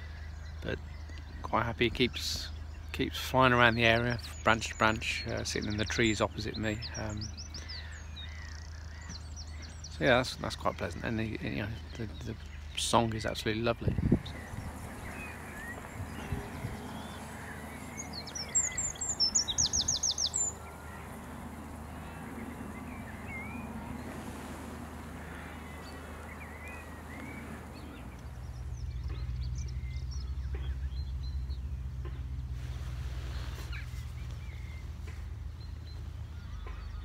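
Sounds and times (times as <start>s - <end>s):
birds chirping faintly: 0.0s - 37.0s
wren singing with rattling trill: 3.6s - 31.6s.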